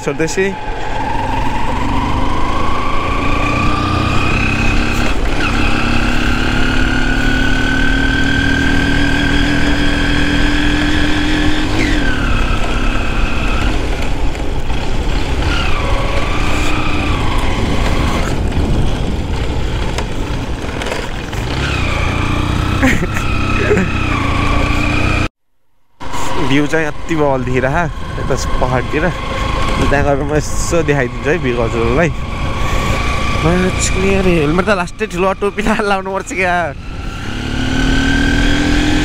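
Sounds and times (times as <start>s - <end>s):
motorcycle engine climbing a hill: 0.0s - 39.0s
wind rumbling on microphone: 12.1s - 22.3s.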